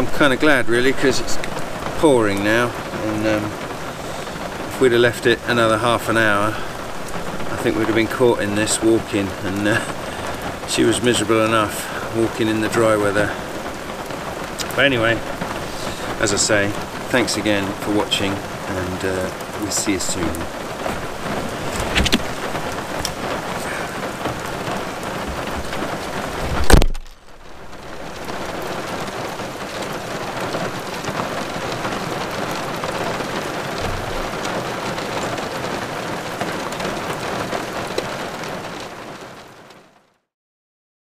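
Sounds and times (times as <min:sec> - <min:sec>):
heavy rain hissing: 0:00.0 - 0:40.0
car tailgate slamming shut: 0:21.8 - 0:22.3.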